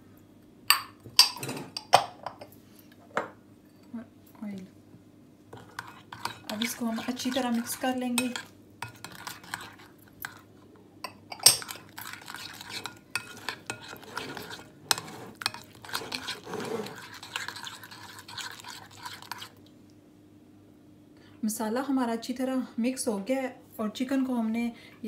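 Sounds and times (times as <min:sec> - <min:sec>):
spoon stirring thick marinade: 0:05.5 - 0:10.6, 0:11.3 - 0:19.7.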